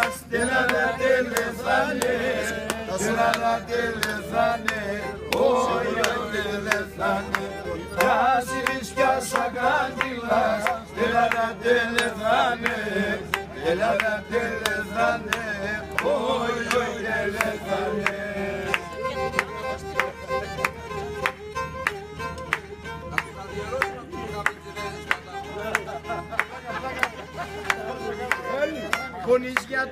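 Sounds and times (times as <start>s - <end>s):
men singing folk melody: 0.0s - 19.1s
sharp hand claps: 0.0s - 29.8s
bowed string instrument: 0.0s - 29.9s.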